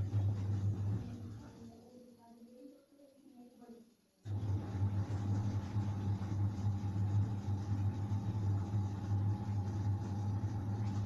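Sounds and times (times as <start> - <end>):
machine hum with whirring hiss: 0.0 - 1.9, 4.2 - 11.0.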